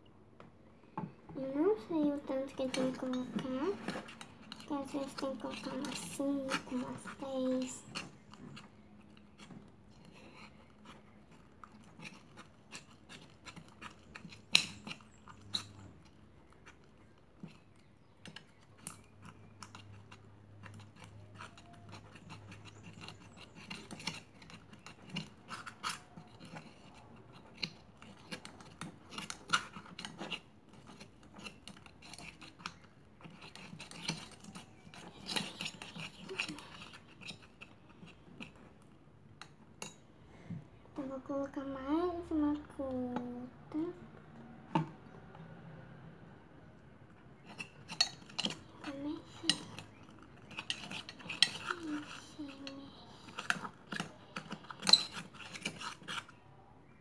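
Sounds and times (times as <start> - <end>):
spoon stirring slime: 0.7 - 40.1, 46.6 - 57.0
spoon scraping metal pot: 1.4 - 17.6, 18.2 - 38.6, 47.4 - 56.4.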